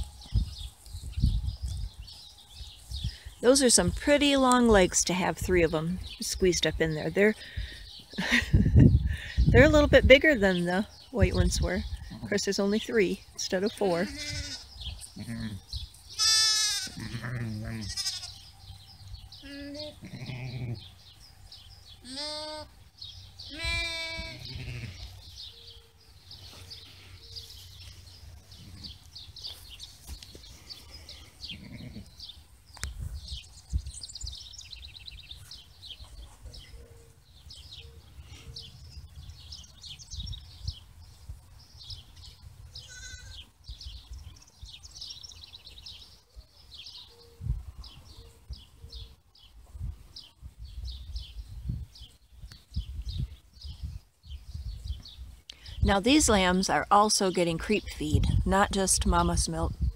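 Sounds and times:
birds chirping: 0.0 - 59.9
sheep bleating: 14.0 - 15.6, 16.2 - 18.4, 19.4 - 20.9, 22.0 - 22.7, 23.5 - 25.1, 42.8 - 43.4.

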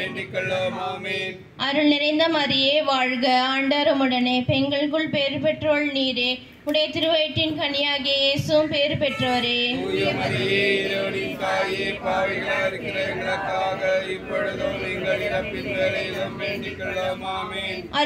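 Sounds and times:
congregation chanting together: 0.0 - 1.5, 9.2 - 18.0
woman chanting prayer: 0.0 - 18.0.

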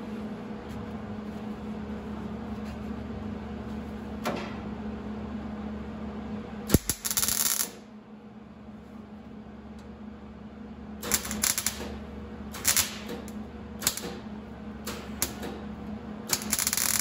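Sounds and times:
steady low hum: 0.0 - 17.0
crackling welding arc: 6.7 - 7.8, 11.0 - 14.2, 15.0 - 15.5, 16.3 - 17.0.

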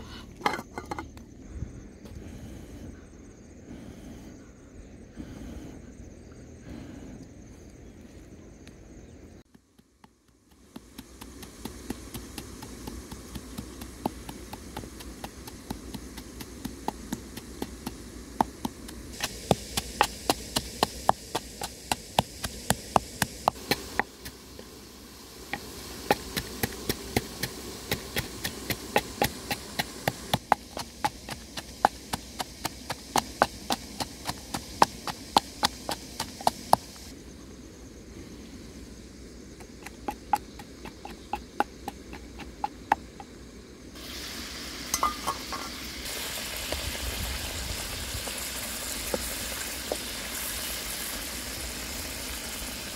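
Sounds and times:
pestle pounding in wooden mortar: 9.5 - 24.4, 25.6 - 37.0, 39.6 - 43.3.

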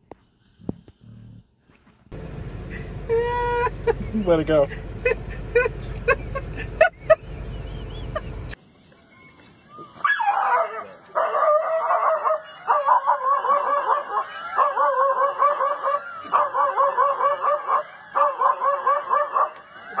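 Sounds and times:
dog yelping barks: 10.0 - 20.0.

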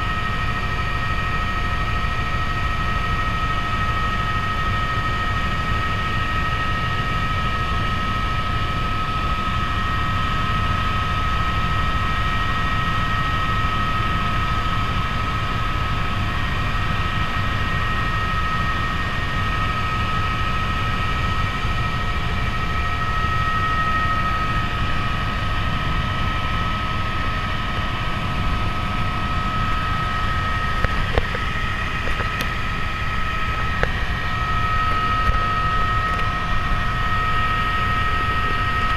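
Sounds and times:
helicopter rotor and engine rumble: 0.0 - 38.9
high turbine whine: 0.0 - 38.9.

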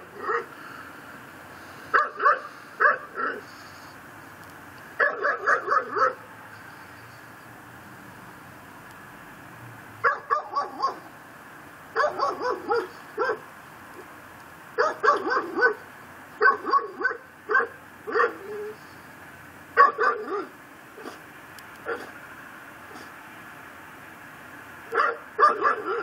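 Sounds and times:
dog barking: 0.2 - 0.5, 1.9 - 3.5, 5.0 - 6.2, 10.0 - 11.1, 12.0 - 13.5, 14.8 - 15.8, 16.4 - 18.8, 19.8 - 21.2, 21.8 - 22.2, 24.9 - 26.0.

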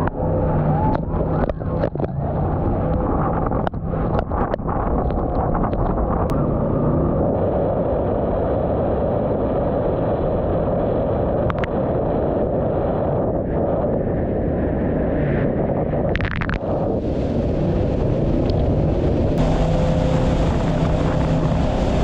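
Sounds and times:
boat engine rushing: 0.0 - 10.0, 16.1 - 22.0
wind buffeting microphone: 0.0 - 22.0.

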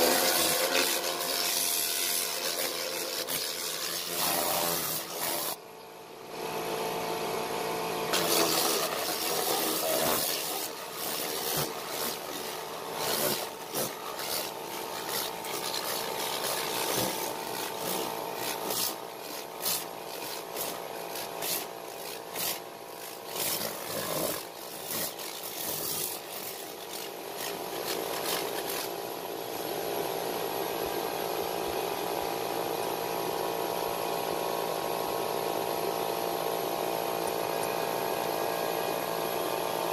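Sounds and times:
motor humming: 8.0 - 29.6
scrubbing cloth upholstery: 8.2 - 22.6, 23.2 - 28.9.

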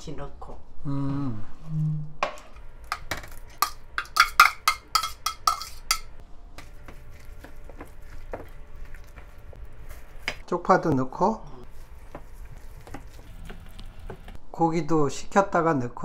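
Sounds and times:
spoon tapping while stirring: 2.2 - 9.4
metal spoon scraping bowl: 2.9 - 10.4.

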